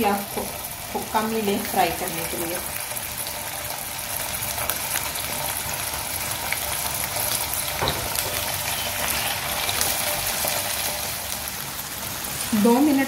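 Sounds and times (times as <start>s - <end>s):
fish sizzling in a frying pan: 0.0s - 13.0s
faint knock in pan: 7.8s - 8.4s.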